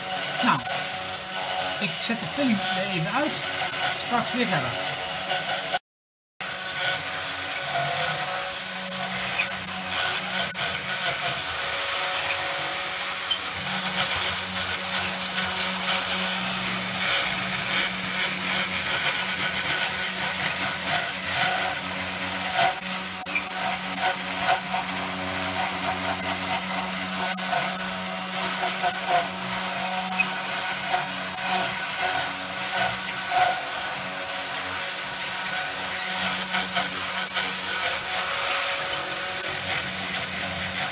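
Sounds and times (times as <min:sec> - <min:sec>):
router bit scraping wood: 0:00.0 - 0:05.8, 0:06.4 - 0:40.9
spindle motor humming: 0:00.0 - 0:05.8, 0:06.5 - 0:40.9.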